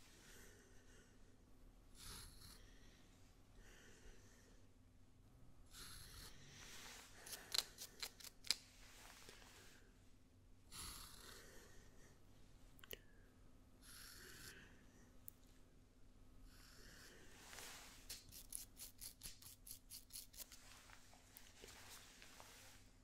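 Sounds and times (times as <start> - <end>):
soft brushing hisses: 6.4 - 10.1, 17.0 - 23.0.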